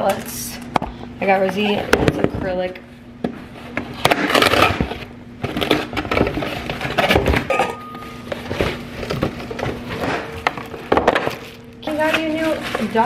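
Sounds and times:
cardboard packaging rustling: 4.2s - 13.0s.

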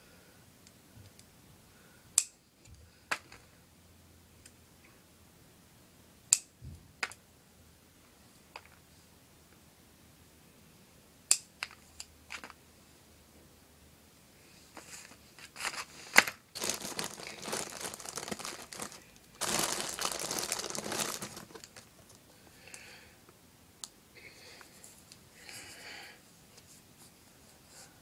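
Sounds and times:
crinkling and rustling: 14.7s - 22.4s.

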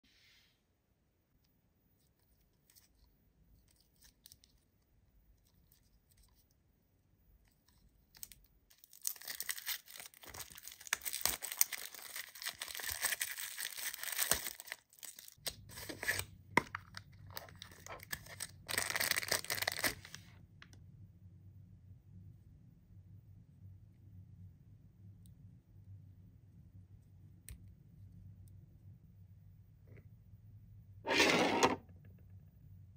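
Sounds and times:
plastic wrap crackling: 8.2s - 20.2s.

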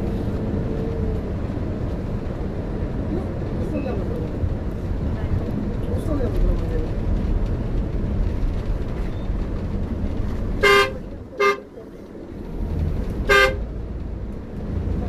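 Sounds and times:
moving vehicle rumble: 0.0s - 15.0s
vehicle horn blasts: 10.6s - 11.7s, 13.3s - 13.6s.

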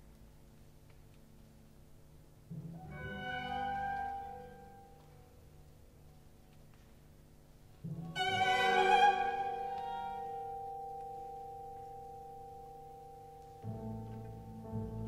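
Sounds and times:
orchestra playing classical music: 8.0s - 11.0s.

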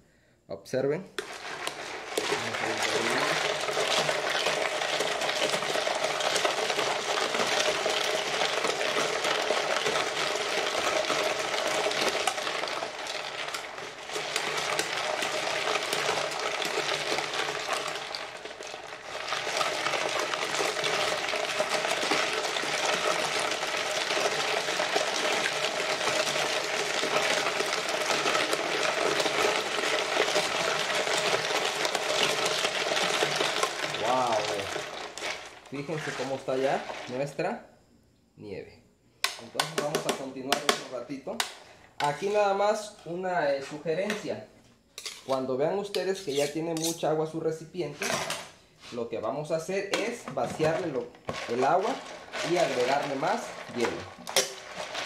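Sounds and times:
metal canister grinding in ice: 1.2s - 37.4s, 46.0s - 47.1s, 47.9s - 48.5s, 49.7s - 55.0s.

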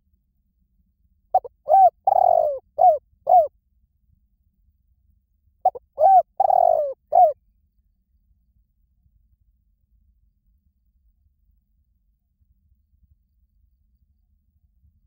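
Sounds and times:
dove cooing: 1.4s - 3.5s, 5.6s - 7.4s.

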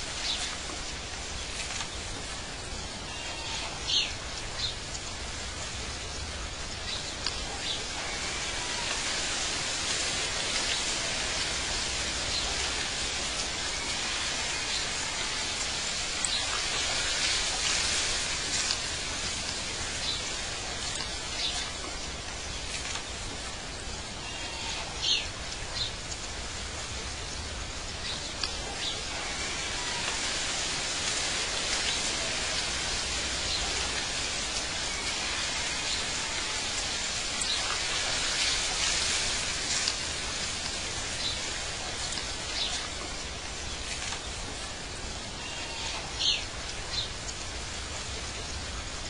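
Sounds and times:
steady outdoor hiss: 0.0s - 49.0s.

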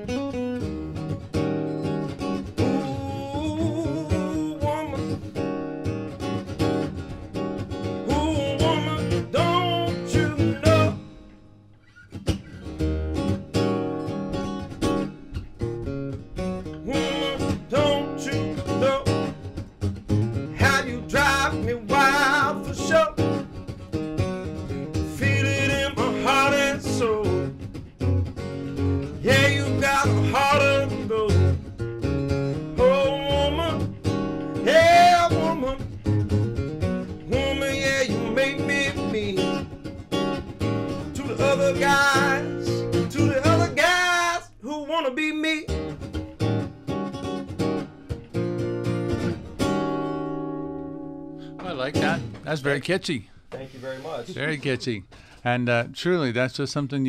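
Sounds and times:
acoustic guitar strumming blues: 0.0s - 55.6s
man singing: 2.6s - 5.2s, 8.0s - 11.0s, 16.8s - 19.3s, 20.5s - 23.5s, 25.0s - 27.6s, 29.1s - 31.6s, 32.7s - 35.9s, 37.2s - 39.6s, 41.0s - 45.8s.

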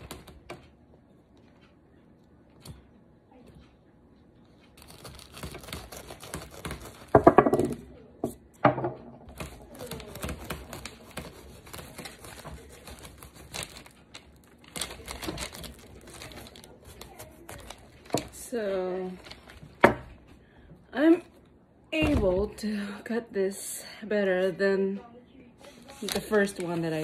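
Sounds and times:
knife sawing through fruit rind: 9.8s - 13.8s.

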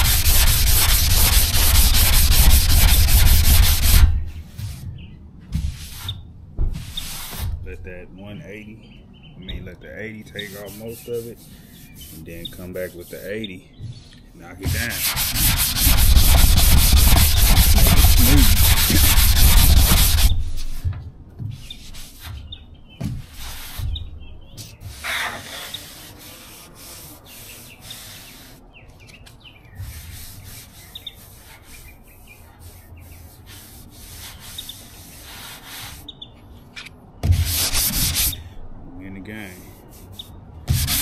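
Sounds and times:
sandpaper sanding metal panel: 0.0s - 4.8s, 5.7s - 6.2s, 6.8s - 7.5s, 10.3s - 13.3s, 14.6s - 20.9s, 21.6s - 22.4s, 23.0s - 24.1s, 24.7s - 29.1s, 29.8s - 36.1s, 37.2s - 38.4s, 39.4s - 41.0s.

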